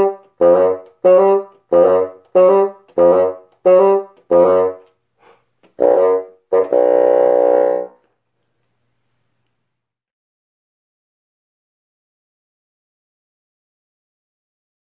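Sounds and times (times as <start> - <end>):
solo bassoon playing: 0.0 - 4.9, 5.7 - 8.1.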